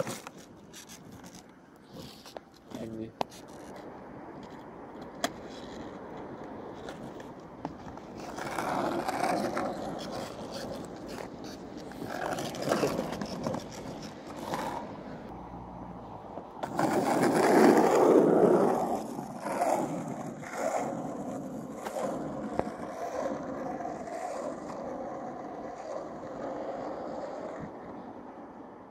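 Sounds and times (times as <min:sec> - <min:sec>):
skateboard clicks: 0:00.0 - 0:15.0, 0:16.3 - 0:28.0
skateboard wheels rolling on asphalt: 0:00.0 - 0:28.9.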